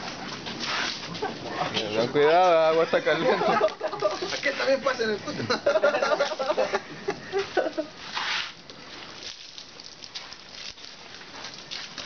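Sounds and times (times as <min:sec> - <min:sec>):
hot water splashing: 0:00.0 - 0:12.0
faint hiss of water run-off: 0:02.4 - 0:12.0.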